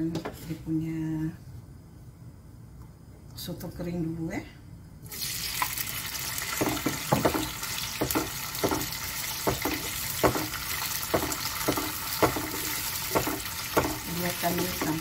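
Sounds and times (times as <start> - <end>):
food sizzling in hot oil: 5.1 - 15.0.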